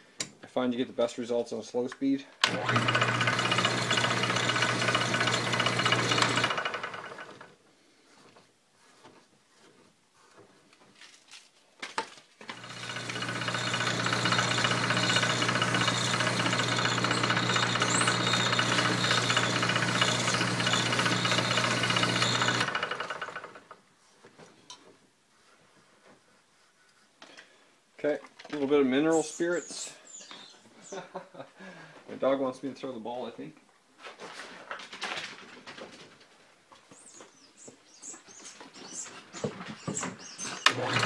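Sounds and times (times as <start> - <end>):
wood lathe motor humming: 2.4 - 7.5, 12.5 - 23.8, 40.6 - 41.0.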